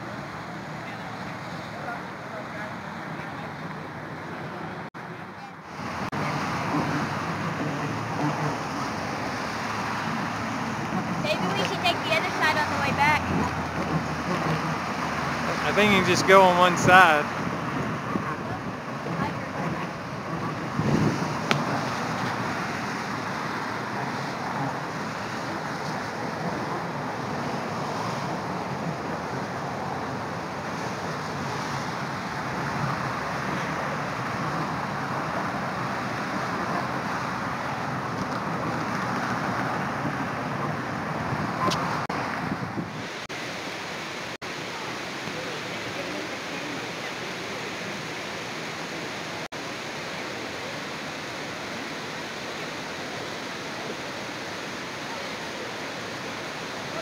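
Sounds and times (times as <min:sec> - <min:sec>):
traffic crossing a bridge: 0:00.0 - 0:43.1
waterfall rushing roar: 0:00.0 - 0:57.0
wind buffeting microphone: 0:05.7 - 0:43.2.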